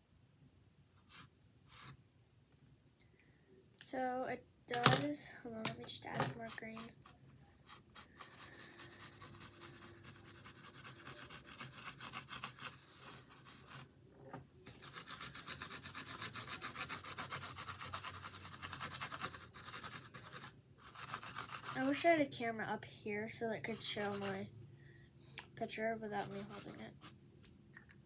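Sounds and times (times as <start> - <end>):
coloring tool rubbing on canvas: 6.4 - 13.9, 14.7 - 22.0, 23.7 - 24.4, 26.2 - 27.2.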